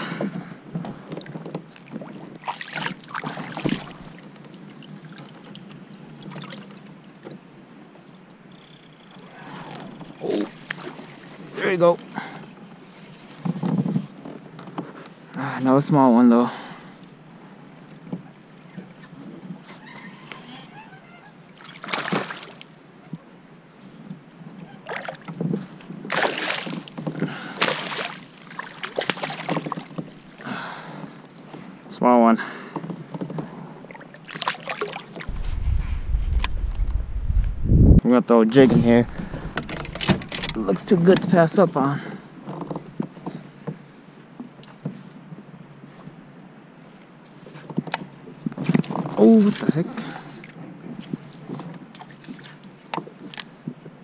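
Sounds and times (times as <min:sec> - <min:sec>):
kayak moving through water: 0:00.3 - 0:08.0, 0:09.0 - 0:15.3, 0:23.9 - 0:31.9, 0:32.6 - 0:38.0, 0:38.6 - 0:41.4, 0:42.1 - 0:54.0
water splashes and knocks: 0:00.7 - 0:07.4, 0:10.0 - 0:12.0, 0:13.0 - 0:14.9, 0:21.6 - 0:22.6, 0:24.9 - 0:30.3, 0:32.8 - 0:37.6, 0:38.6 - 0:41.4, 0:47.7 - 0:50.2
fish splashing and thrashing: 0:02.4 - 0:04.1, 0:26.1 - 0:30.1, 0:39.0 - 0:40.7.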